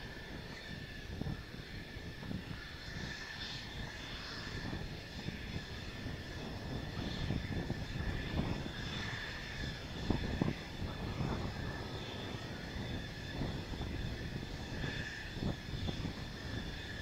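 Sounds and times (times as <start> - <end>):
jet engine turbine whine: 0.0 - 17.0.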